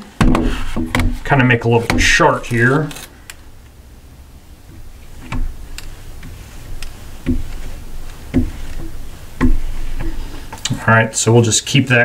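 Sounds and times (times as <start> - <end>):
marker tapping on glass: 5.2 - 10.3.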